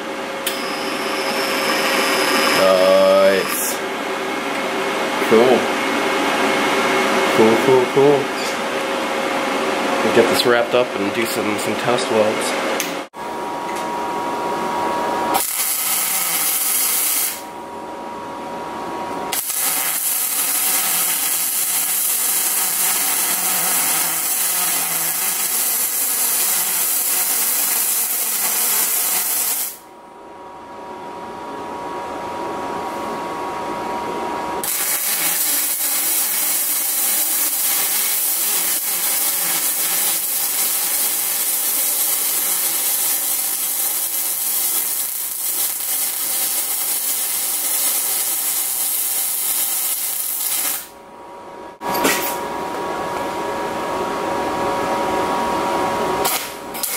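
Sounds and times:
welding arc crackling: 15.4 - 17.5, 19.3 - 29.8, 34.6 - 50.9.

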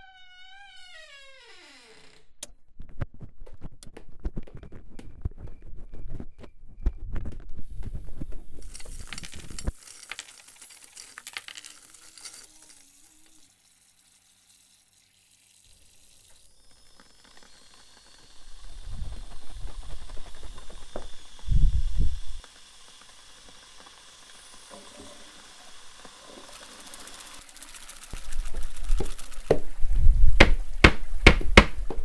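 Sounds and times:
rapid metallic clinks and clicks: 8.6 - 16.4, 26.4 - 29.6.

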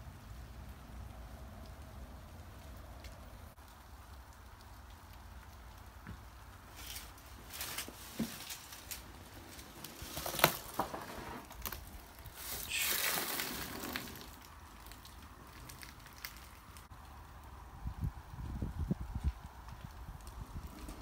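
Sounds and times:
footsteps crunching over debris: 6.0 - 16.9.

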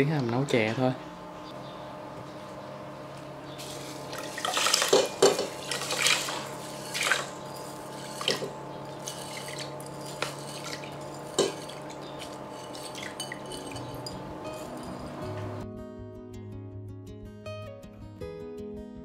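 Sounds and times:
beans and water pouring into pot: 3.6 - 8.5
beans scraped out of bowl: 3.6 - 15.0
water splashes and drips: 5.6 - 7.3.

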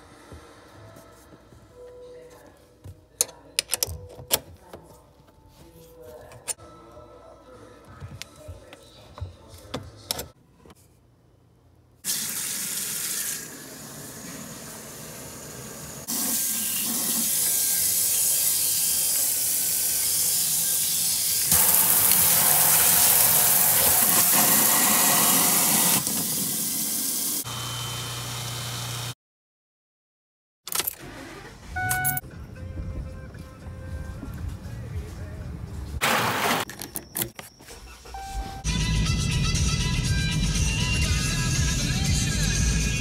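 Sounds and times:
faucet water running into sink: 12.1 - 27.4.

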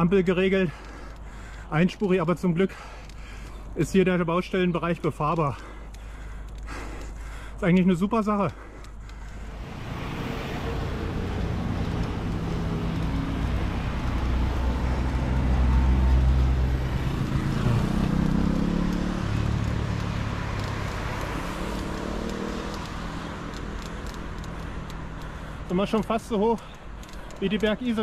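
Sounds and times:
road noise rumble: 0.0 - 28.0
car engine passing: 9.3 - 25.7.

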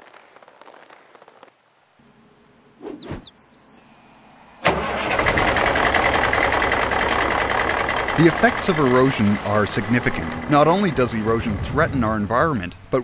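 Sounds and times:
high falling bird chirps: 1.8 - 4.6
truck diesel engine running: 3.9 - 13.0.

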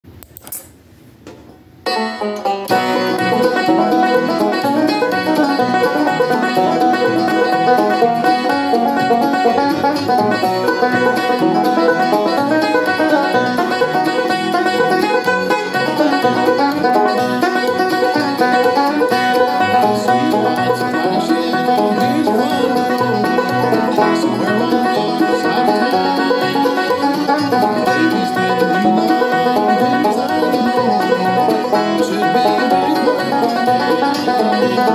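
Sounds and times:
banjo picking a tune: 1.8 - 34.9.

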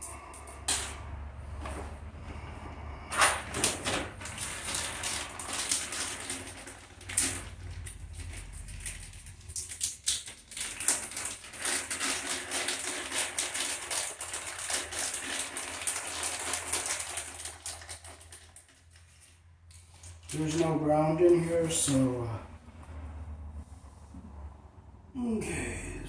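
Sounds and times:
wires and hand tools rattling: 3.2 - 21.5.

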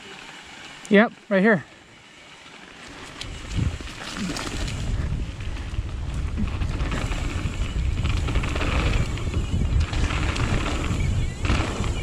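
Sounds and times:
mountain bike rumbling on trail: 2.0 - 12.0
wind rushing over microphone: 3.1 - 12.0.

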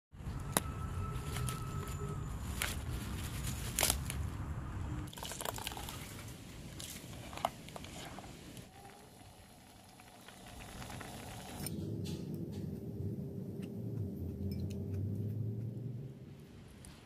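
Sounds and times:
leaves snapping: 2.5 - 4.4
low rumble: 11.6 - 17.0.

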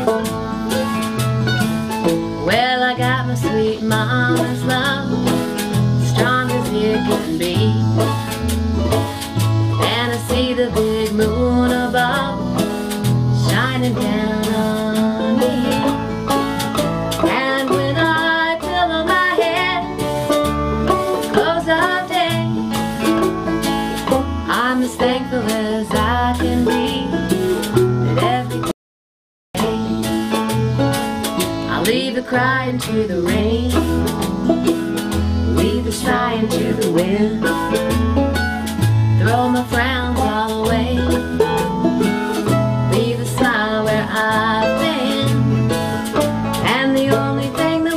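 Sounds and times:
acoustic guitar strumming: 0.0 - 28.7, 29.6 - 47.9
bass notes: 0.0 - 28.7, 29.6 - 47.9
banjo picking: 0.0 - 28.8, 29.6 - 47.9
woman singing: 2.4 - 8.1, 9.7 - 12.7, 13.3 - 16.0, 17.2 - 20.1, 21.2 - 22.6, 24.4 - 27.3, 28.1 - 28.7, 31.7 - 34.4, 35.4 - 37.9, 39.2 - 41.7, 42.9 - 45.7, 46.6 - 47.9.

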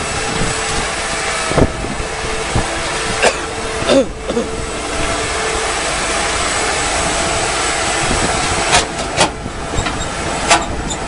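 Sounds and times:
heavy diesel machinery running: 0.0 - 11.0.

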